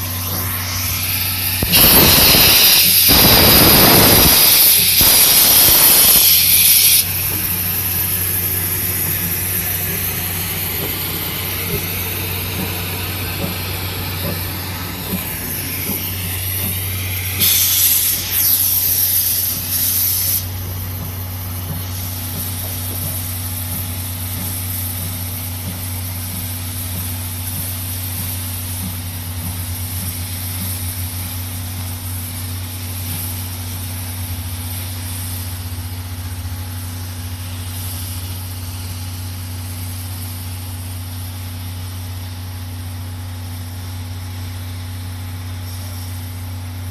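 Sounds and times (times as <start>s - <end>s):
steady low hum: 0.0s - 33.3s
loud steam hiss: 0.0s - 46.9s.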